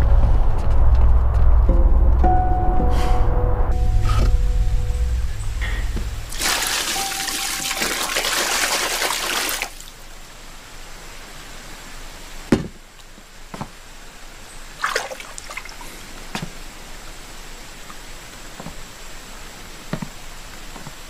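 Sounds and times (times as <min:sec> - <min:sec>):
water pouring into wooden tub: 0:06.3 - 0:10.0, 0:14.8 - 0:16.0.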